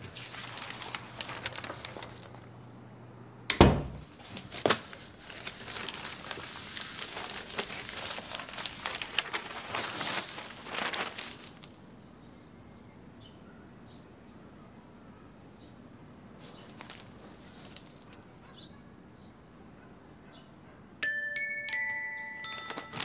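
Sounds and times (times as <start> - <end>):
newspaper pages rustling: 0.0 - 2.6, 4.1 - 11.9, 16.4 - 18.3, 21.9 - 23.0.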